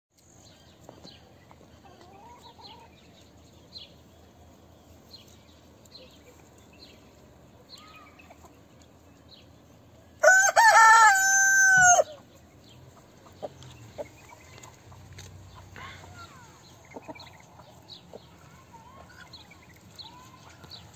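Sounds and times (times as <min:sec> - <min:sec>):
small birds chirping: 0:00.2 - 0:10.2, 0:12.1 - 0:20.9
rooster crowing: 0:10.2 - 0:12.2.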